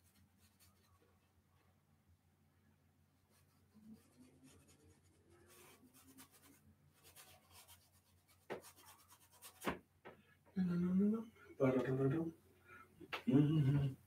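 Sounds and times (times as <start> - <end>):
paintbrush strokes on canvas: 0.0 - 1.1, 3.2 - 9.7.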